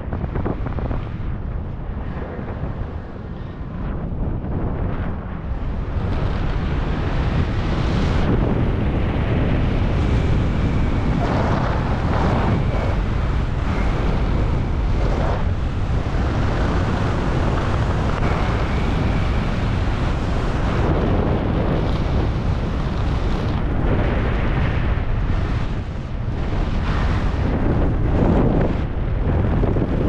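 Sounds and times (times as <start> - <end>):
wind rushing over microphone: 0.0 - 30.0.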